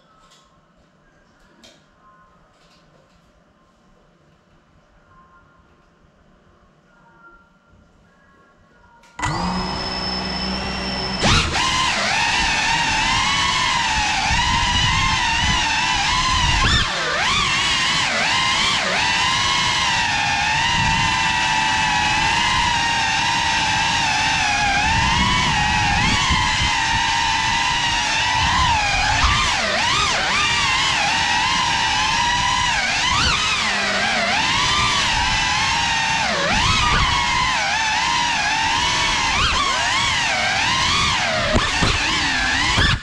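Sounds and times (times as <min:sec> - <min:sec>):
drone propellers whining: 0:09.2 - 0:43.0.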